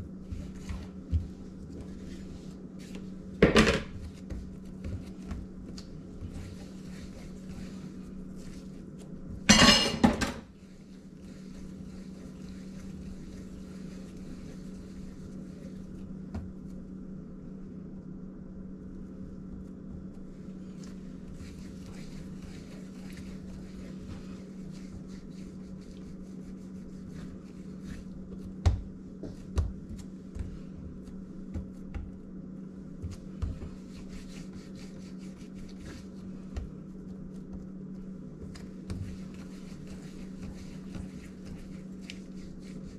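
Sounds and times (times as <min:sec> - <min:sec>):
hands rolling bread dough: 0:00.0 - 0:17.5, 0:18.8 - 0:42.9
steady low hum: 0:00.0 - 0:42.9.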